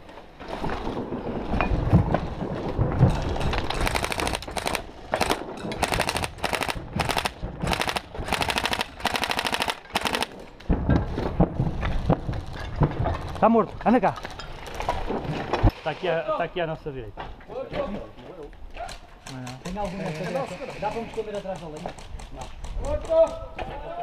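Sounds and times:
airsoft rifle firing bursts: 3.7s - 10.4s.

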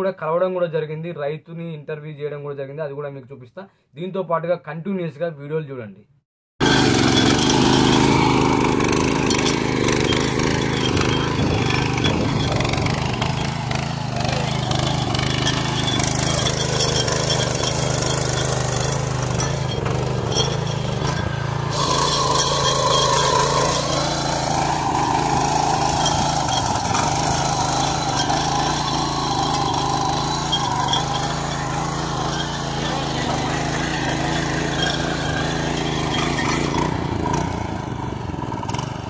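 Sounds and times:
power weeder engine running: 6.6s - 39.0s.

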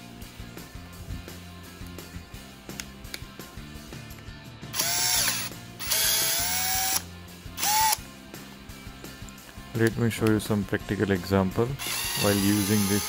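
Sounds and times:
cordless drill whining: 4.7s - 8.0s, 11.8s - 13.0s.

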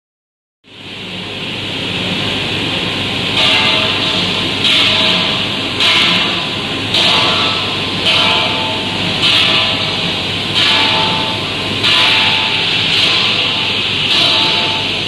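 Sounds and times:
blasting machine hissing: 3.4s - 15.0s.

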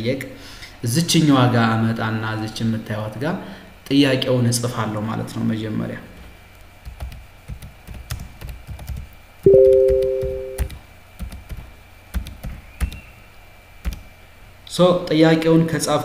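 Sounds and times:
two-tone notification chime: 9.5s - 10.7s.

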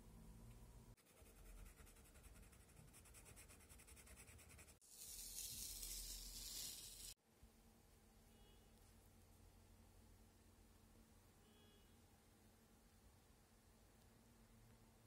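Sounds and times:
pencil scratching on paper: 1.0s - 7.2s
paper tape being peeled: 4.9s - 7.2s.

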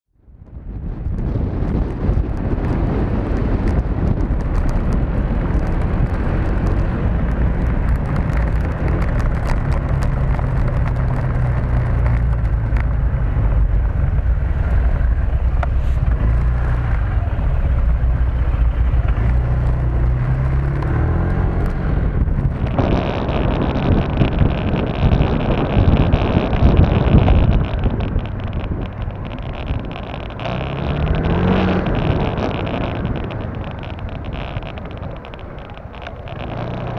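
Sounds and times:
wind noise on microphone: 0.1s - 36.9s
motorcycle engine running: 0.3s - 36.9s.

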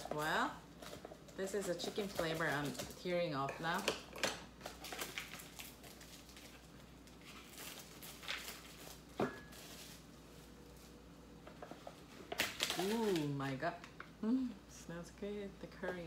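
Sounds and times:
packaging rustling and tearing: 4.6s - 11.0s, 12.0s - 13.4s.

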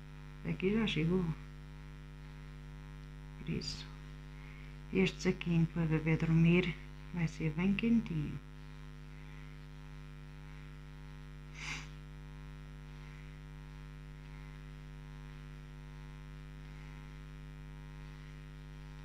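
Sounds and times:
electrical mains hum: 0.0s - 19.0s
short breath: 11.6s - 11.9s.

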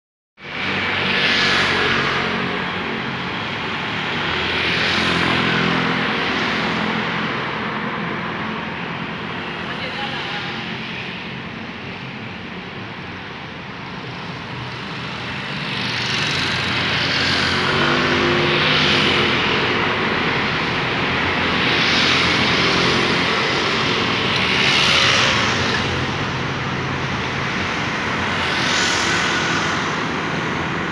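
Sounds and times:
cars and scooters passing: 0.4s - 30.9s.

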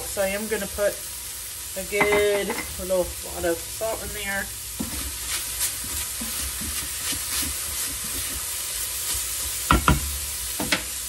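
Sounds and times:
ground meat sizzling: 0.0s - 11.0s
spoon stirring and scraping: 4.8s - 9.7s.

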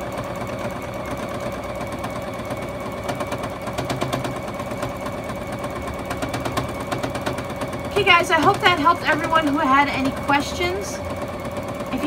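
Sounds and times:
sewing machine running: 0.0s - 12.0s.

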